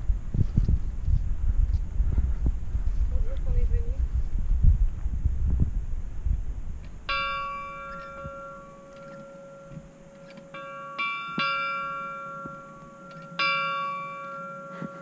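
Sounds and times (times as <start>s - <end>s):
small chapel bell ringing: 7.0s - 15.0s.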